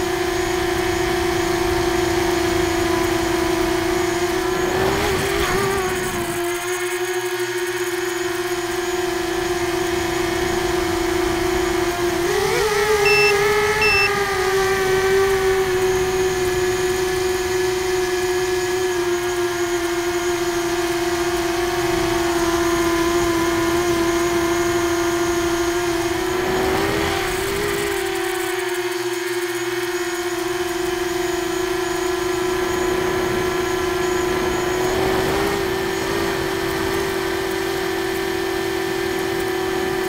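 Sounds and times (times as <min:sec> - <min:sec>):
drone motors whining: 0:00.0 - 0:40.0
short high beeps: 0:13.0 - 0:14.2.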